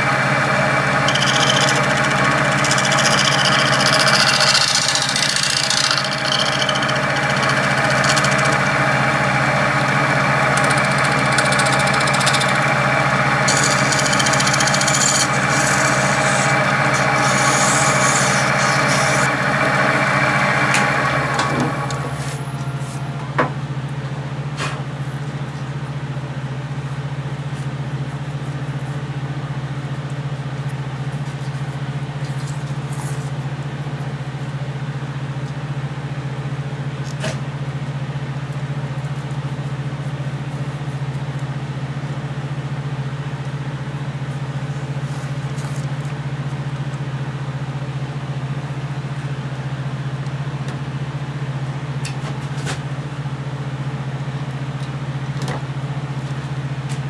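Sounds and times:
lathe motor humming: 0.0 - 24.1.

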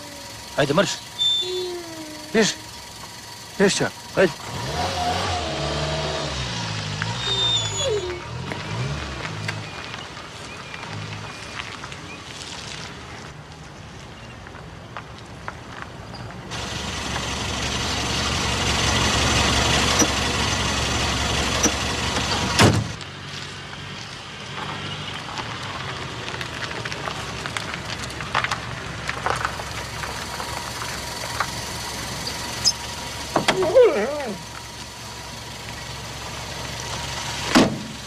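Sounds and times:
car engine: 0.0 - 14.0, 14.6 - 38.0
tyres on dirt road: 0.0 - 38.0
sharp thump: 37.5 - 38.0.

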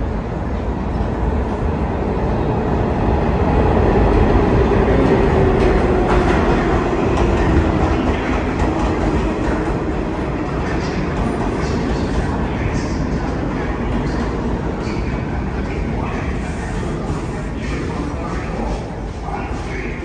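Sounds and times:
subway train rumbling: 0.0 - 20.0.

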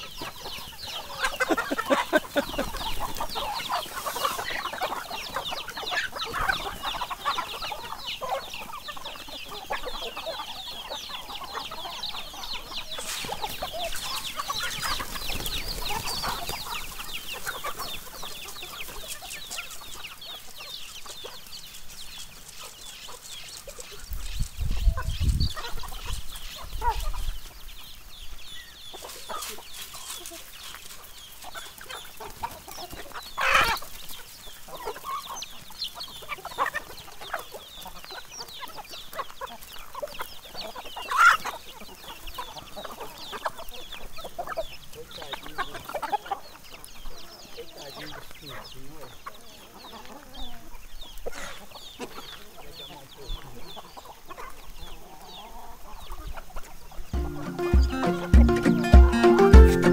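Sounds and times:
chickens clucking and cheeping: 0.0 - 59.9.

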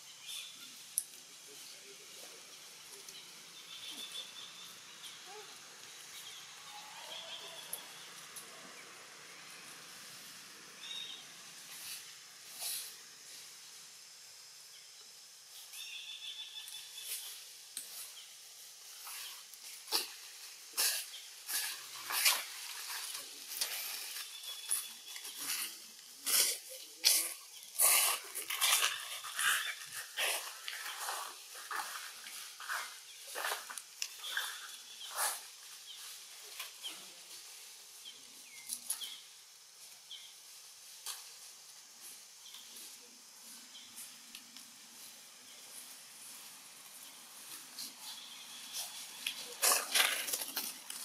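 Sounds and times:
steady high hiss: 0.0 - 51.0
leafy branches rustling: 15.4 - 51.0.

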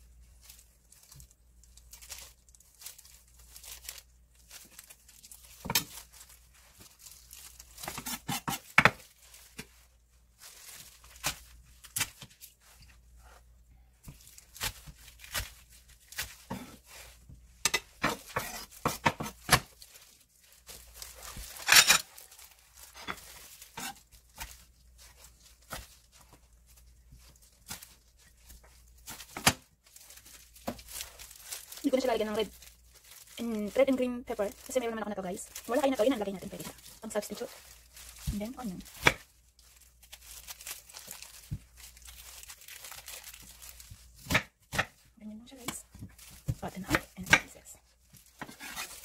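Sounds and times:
knife slicing vegetables: 48.4 - 49.0.

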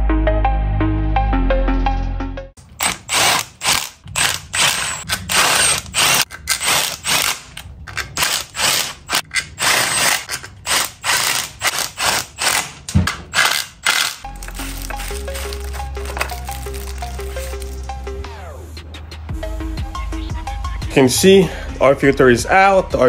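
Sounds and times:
socket ratchet clicking: 2.6 - 16.3.

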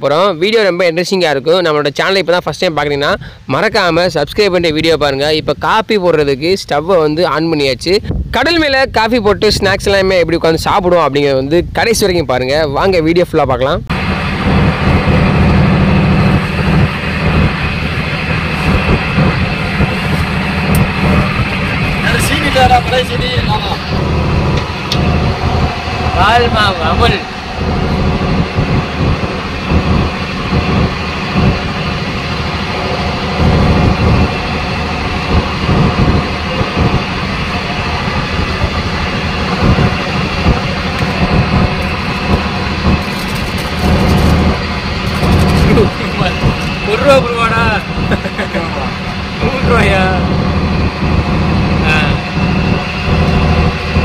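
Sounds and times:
boat engine droning: 13.9 - 54.0.

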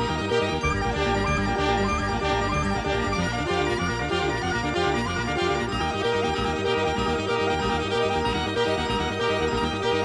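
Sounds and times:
repeating bass beat: 0.6 - 5.7
held melodic tones: 0.6 - 7.2.

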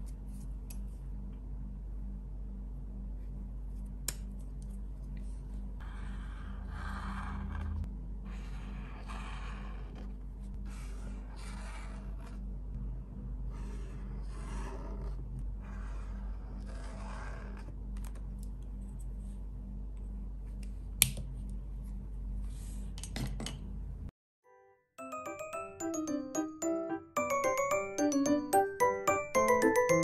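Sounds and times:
steady low hum: 0.0 - 24.1
marker scratching on paper: 10.7 - 12.4, 13.5 - 17.7
mallet percussion music: 25.0 - 30.0.

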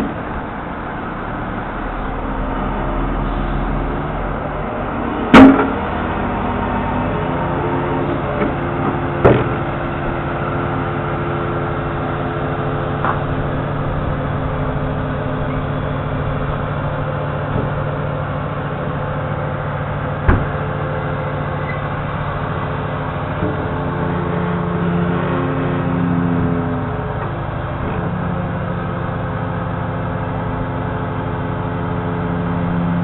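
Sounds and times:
diesel truck engine running: 0.0 - 33.0
sharp metal clunks: 5.3 - 5.8, 20.2 - 20.6.

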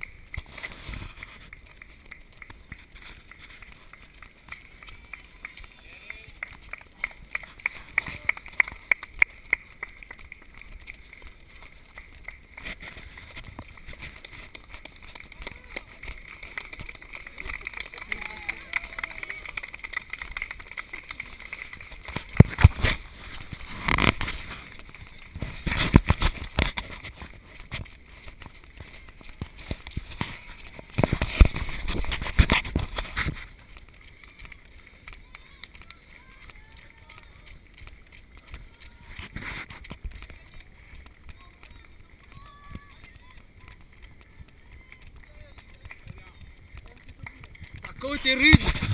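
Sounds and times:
faint ticks: 0.0 - 17.2, 21.5 - 48.9
footsteps on gravel path: 0.0 - 48.9
person clapping hands: 1.4 - 22.8
handheld camera knocking and rubbing: 22.0 - 35.8, 37.6 - 48.9.

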